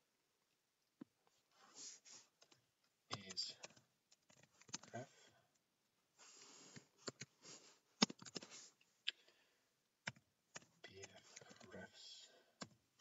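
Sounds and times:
computer keyboard keystrokes: 2.4 - 4.9, 8.0 - 8.5, 10.0 - 11.7.

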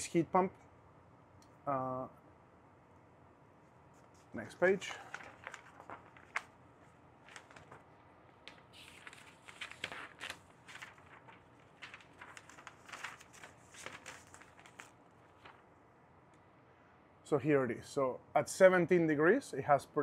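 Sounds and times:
paper rustling: 3.9 - 15.7.

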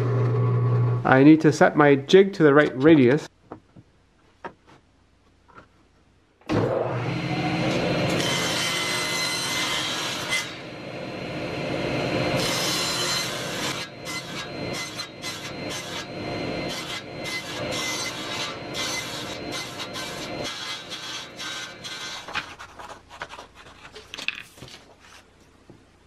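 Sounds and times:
table saw cutting plywood: 6.5 - 22.6.

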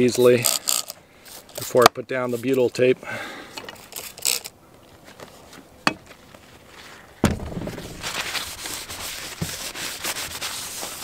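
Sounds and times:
paper towel rubbing on metal: 7.8 - 11.0.

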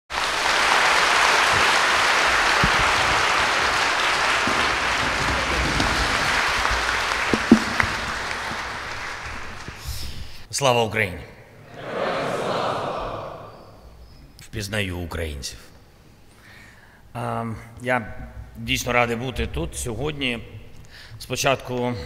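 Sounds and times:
audience applauding: 0.1 - 10.1
brief thump: 7.3 - 8.7.

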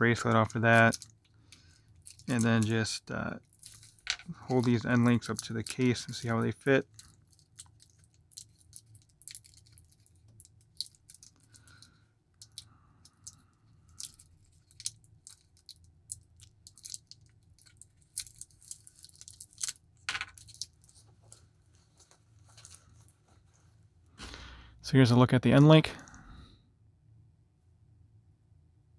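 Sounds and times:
plastic wrap crinkling: 3.4 - 11.8, 13.9 - 19.7.

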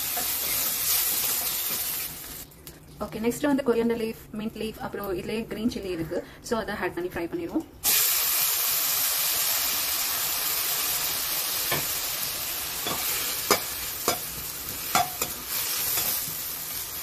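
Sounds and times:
leaves sizzling in hot oil: 0.0 - 2.5, 7.8 - 17.0
metal spoon scraping a pan: 12.8 - 16.4.

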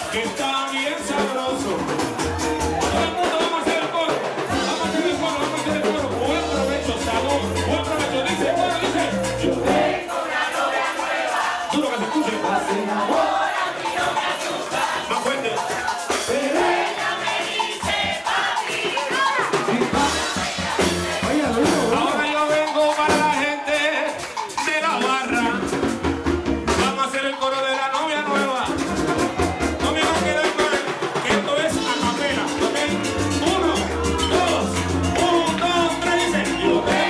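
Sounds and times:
man singing into microphone: 0.0 - 1.9, 2.8 - 10.0, 11.7 - 13.5, 14.8 - 16.9, 19.6 - 20.5, 21.2 - 25.8, 26.8 - 28.7, 29.7 - 37.0
hand drums: 0.0 - 27.2, 28.0 - 37.0
shaker percussion: 0.0 - 37.0.

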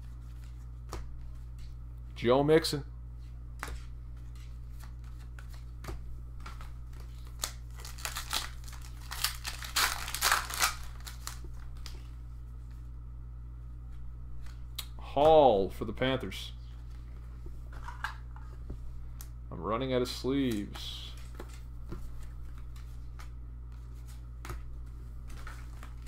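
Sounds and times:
steady low hum: 0.0 - 26.0
trading cards clicking and rustling: 3.6 - 12.1
plastic packaging crinkling: 7.0 - 12.0.

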